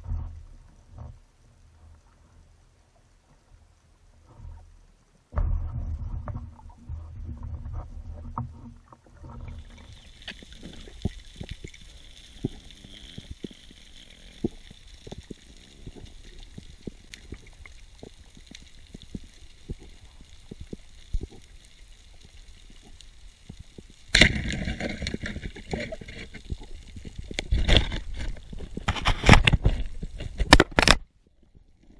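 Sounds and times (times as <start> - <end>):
water rumble and sloshing: 0.0 - 31.9
underwater clicks and crackles: 5.4 - 31.9
underwater hiss: 9.6 - 21.4.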